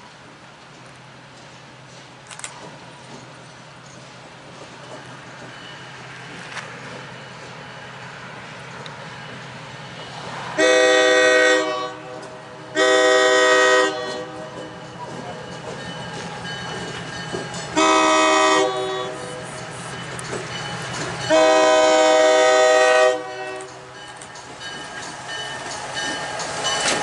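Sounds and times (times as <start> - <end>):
low train rumble: 0.0 - 27.0
locomotive horn blasts: 10.6 - 14.6, 17.8 - 19.4, 21.3 - 23.8.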